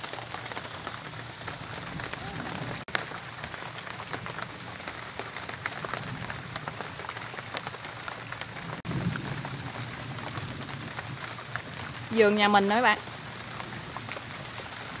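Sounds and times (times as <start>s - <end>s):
heavy rain on leaves: 0.0s - 15.0s.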